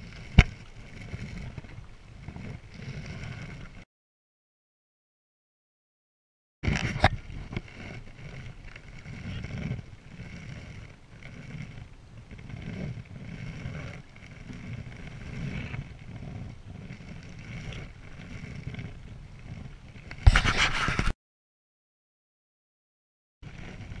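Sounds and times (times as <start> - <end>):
canoe paddle strokes: 0.0 - 3.8, 6.7 - 21.1, 23.5 - 24.0
water rushing along hull: 6.7 - 20.2, 23.5 - 24.0.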